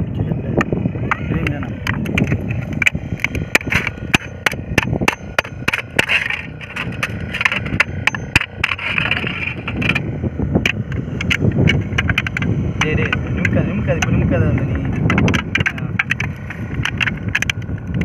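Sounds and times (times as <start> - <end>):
hammer tapping on tinplate: 1.4 - 10.0.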